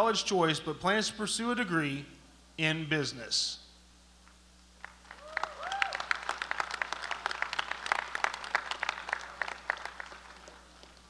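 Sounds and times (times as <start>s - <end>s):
audience clapping: 4.8s - 11.0s.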